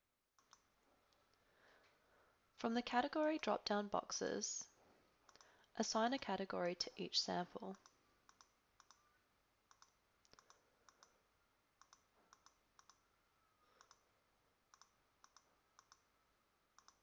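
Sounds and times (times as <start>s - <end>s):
faint computer mouse clicks: 7.7s - 9.0s, 9.7s - 11.2s, 11.8s - 13.0s, 13.8s - 14.0s, 14.7s - 16.0s, 16.8s - 17.0s.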